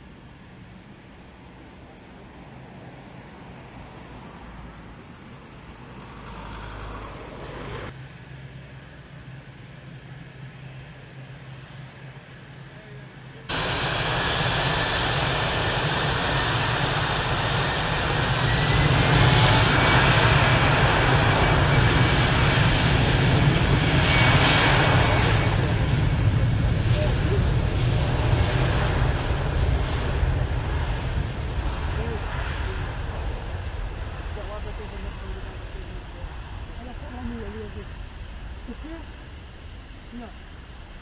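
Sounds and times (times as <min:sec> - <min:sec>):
jet engines spooling up: 0:13.4 - 0:36.7.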